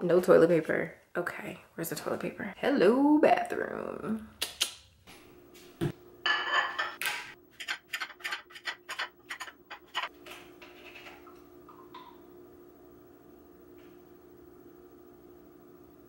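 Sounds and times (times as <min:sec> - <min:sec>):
faint steady hum: 0:05.1 - 0:16.0.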